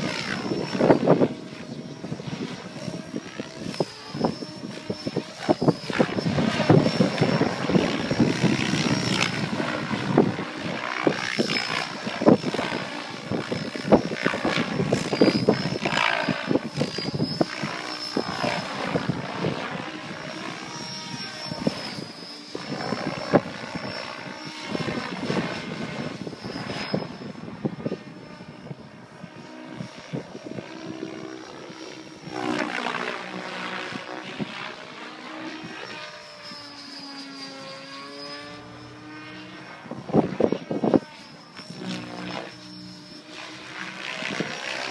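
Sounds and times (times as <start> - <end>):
wind buffeting microphone: 0.0 - 36.2, 39.5 - 44.9
helicopter rotor noise: 0.0 - 44.9
high motor whine: 0.0 - 44.9.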